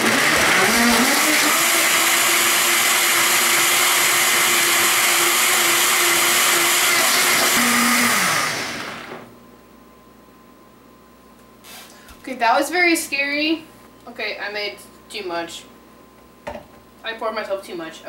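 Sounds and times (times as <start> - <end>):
blender running: 0.0 - 9.3.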